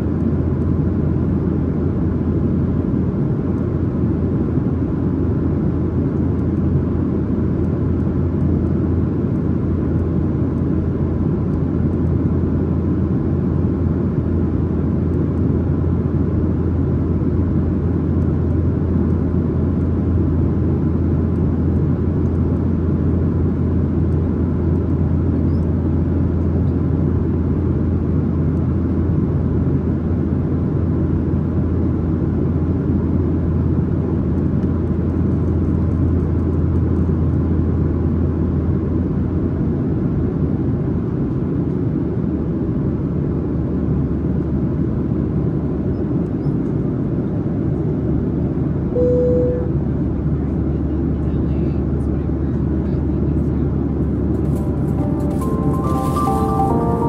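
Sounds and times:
jet engine and airflow drone: 0.0s - 56.9s
low hum: 48.9s - 50.0s.

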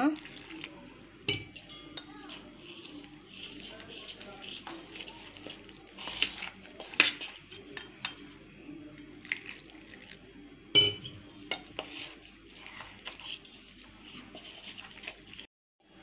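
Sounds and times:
spoon stirring batter in metal bowl: 0.0s - 16.0s
spoon clinking against bowl: 1.3s - 2.2s, 10.7s - 15.3s.

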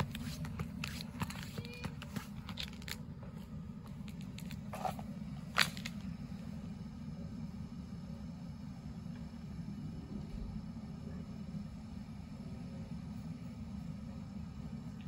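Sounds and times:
footsteps crunching in snow: 0.0s - 6.0s
steady low rumble: 0.0s - 15.0s.

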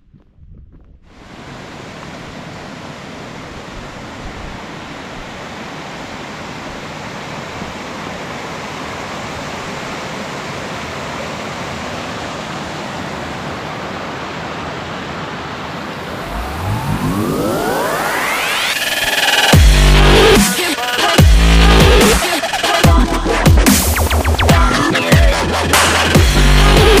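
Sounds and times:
stream rushing over rocks: 1.2s - 19.6s.

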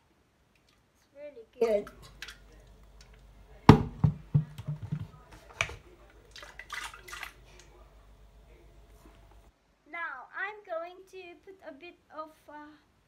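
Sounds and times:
kettle clunks and knocks: 3.7s - 5.8s
water splashing: 5.7s - 7.7s.

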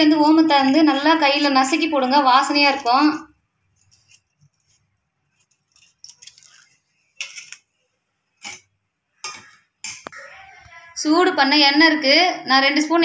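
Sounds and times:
dry seeds rustling and clicking: 3.7s - 7.6s.

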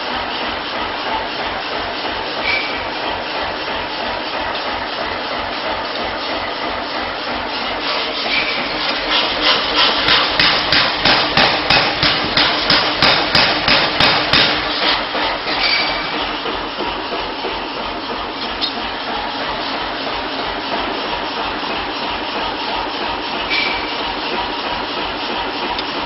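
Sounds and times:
workshop machinery hum: 0.0s - 26.0s
metal hammer blows: 8.3s - 16.2s.

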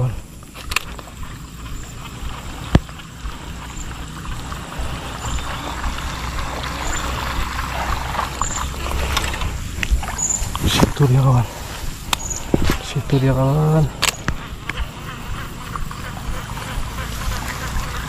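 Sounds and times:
water swishing and trickling: 0.0s - 18.0s
faint high chirp: 3.7s - 9.2s, 10.0s - 10.6s
sharp click: 14.0s - 14.8s.

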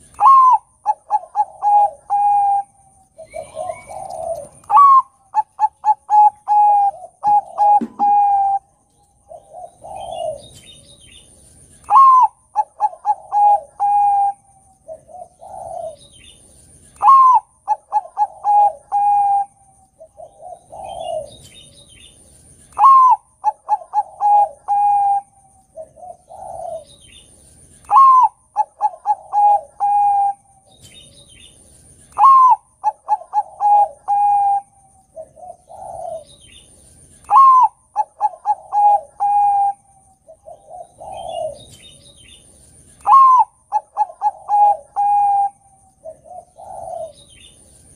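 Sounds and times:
dove cooing song: 0.0s - 47.9s.

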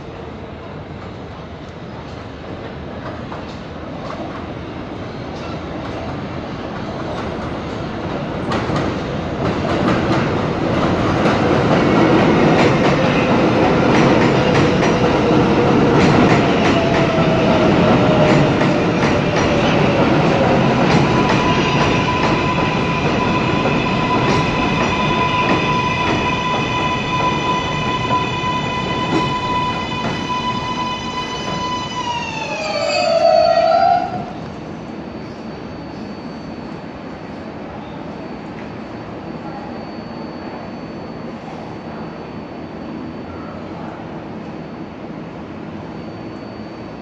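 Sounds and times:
train wheels rumbling on rails: 0.0s - 37.4s
rail joint clicks: 1.0s - 4.5s, 5.3s - 28.2s
electric whine of braking train: 6.9s - 47.0s.

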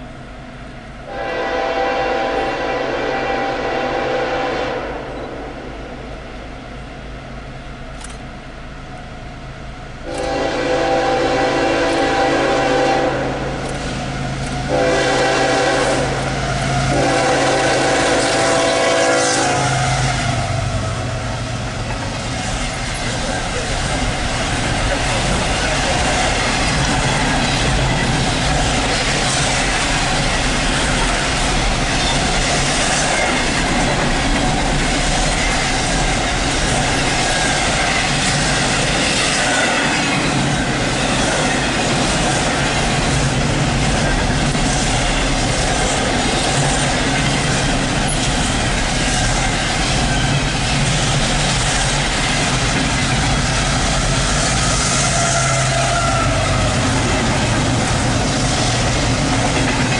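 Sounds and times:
diesel locomotive engine drone: 0.0s - 59.9s
train wheels rumbling on rails: 0.0s - 59.9s.

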